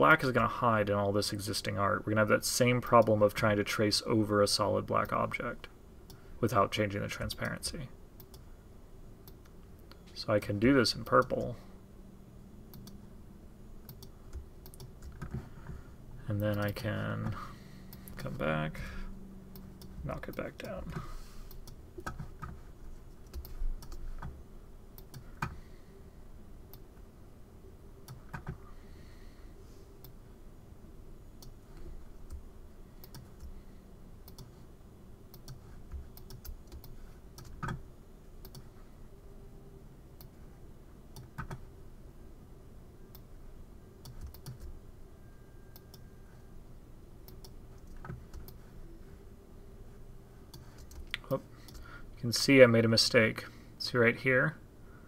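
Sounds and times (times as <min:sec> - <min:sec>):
keyboard and mouse clicks: 0:13.8 - 0:15.4, 0:23.2 - 0:24.3, 0:35.3 - 0:37.8, 0:44.0 - 0:44.7, 0:47.3 - 0:48.6.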